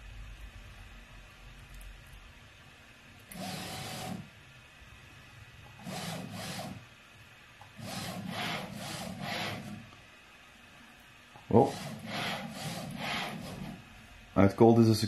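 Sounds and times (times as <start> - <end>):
stepper motors whirring: 3.3 - 4.2, 5.8 - 6.8, 7.8 - 9.8, 11.4 - 13.8.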